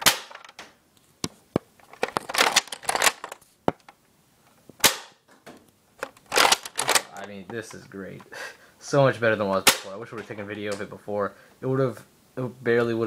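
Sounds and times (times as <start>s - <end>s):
plastic bolt racking clicks: 1.8s - 3.9s, 6.0s - 7.8s.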